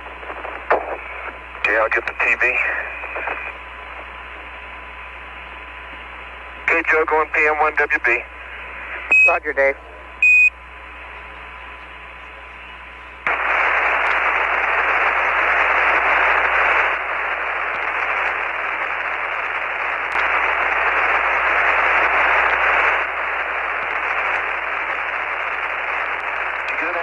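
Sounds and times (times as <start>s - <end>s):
radio static hiss: 0.0s - 27.0s.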